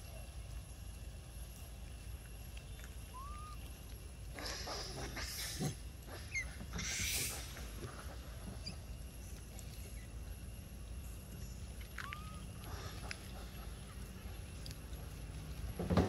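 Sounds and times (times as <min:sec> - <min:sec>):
monkey chirping calls: 0:03.0 - 0:10.2, 0:11.9 - 0:14.2.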